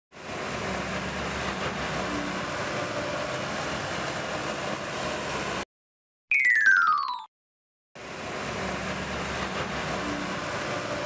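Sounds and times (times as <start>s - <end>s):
heavy machinery engine rumble: 0.2s - 5.6s, 8.0s - 11.0s.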